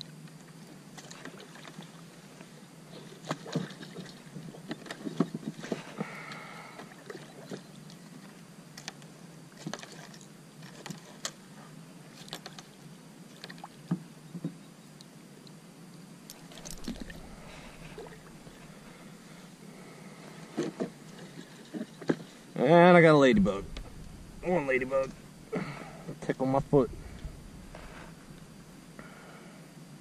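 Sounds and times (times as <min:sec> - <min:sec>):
faint water sounds: 0:00.0 - 0:08.9, 0:16.2 - 0:30.0
brief low rumble: 0:16.5 - 0:19.0, 0:23.2 - 0:28.8.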